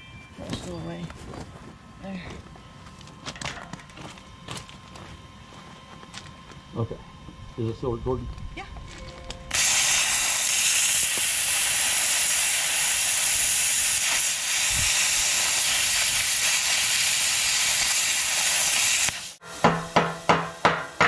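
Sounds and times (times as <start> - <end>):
plasma cutter arc hissing: 9.5 - 19.4.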